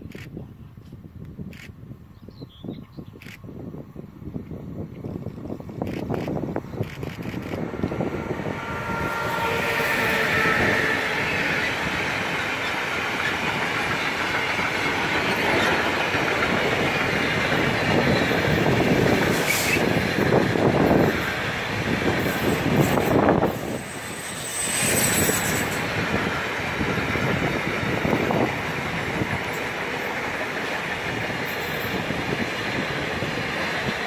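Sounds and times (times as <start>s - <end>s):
freight train wheels rumbling: 0.0s - 34.0s
high wheel squeal: 8.5s - 14.3s, 22.2s - 26.2s.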